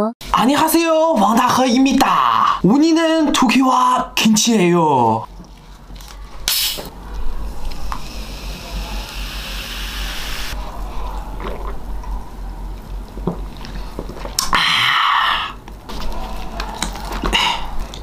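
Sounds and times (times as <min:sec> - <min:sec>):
loud hiss: 0:06.5 - 0:06.9, 0:08.0 - 0:10.6
soft gulps: 0:10.6 - 0:11.9.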